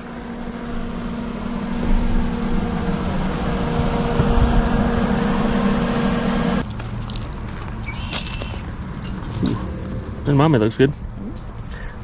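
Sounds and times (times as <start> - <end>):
steady machine hum: 0.0 - 6.7
rushing noise and low rumble: 0.0 - 11.7.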